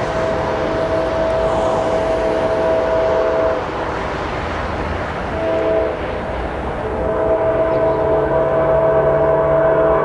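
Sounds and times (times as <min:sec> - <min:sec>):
locomotive air horn: 0:00.0 - 0:03.8, 0:05.3 - 0:06.2, 0:06.8 - 0:10.0
locomotive low rumble: 0:00.0 - 0:10.0.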